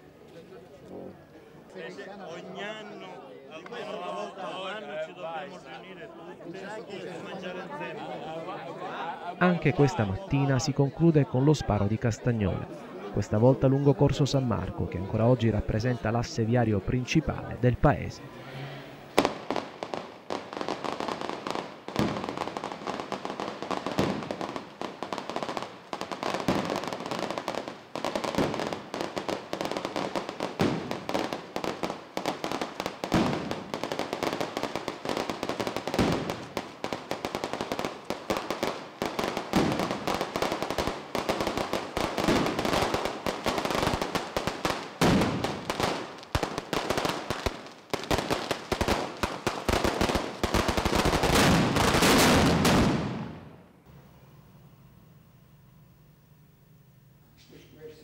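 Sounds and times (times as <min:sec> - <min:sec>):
firecrackers crackling: 0:19.0 - 0:54.2
heavy firecracker blasts: 0:19.1 - 0:53.6.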